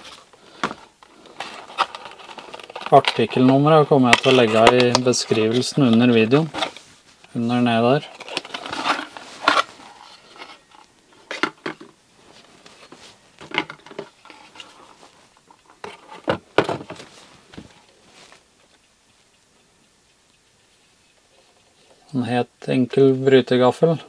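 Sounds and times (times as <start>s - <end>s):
cardboard box rustling and scraping: 8.2s - 10.7s.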